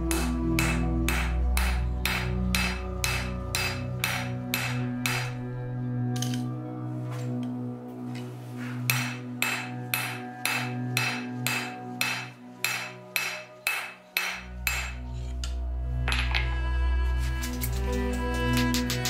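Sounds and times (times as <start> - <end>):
background music: 0.0 - 19.0
hammer ringing on anvil: 0.1 - 5.4, 8.9 - 15.0.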